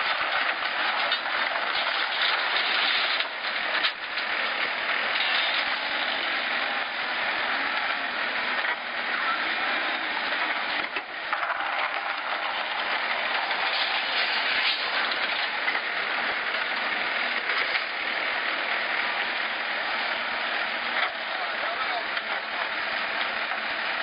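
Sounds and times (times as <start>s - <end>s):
knocks and rattles: 0.0s - 6.4s, 10.7s - 18.3s
diesel engine running: 0.0s - 24.0s.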